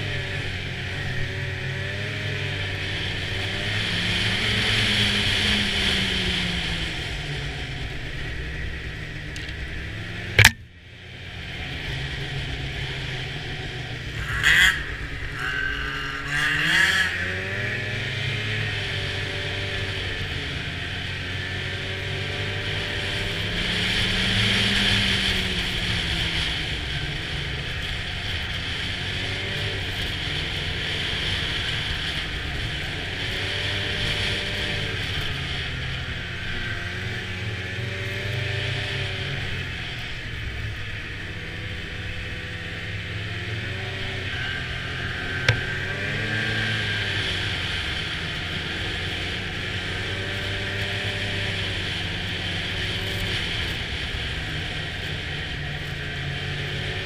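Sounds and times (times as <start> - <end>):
snowmobile engine: 0.0 - 57.0
sharp knock: 10.4 - 10.6.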